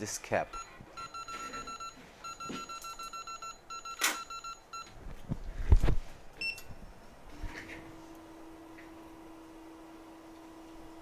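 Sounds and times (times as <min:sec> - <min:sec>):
rapid electronic beeping: 0:00.5 - 0:04.9
hot-air blower humming: 0:06.9 - 0:11.0.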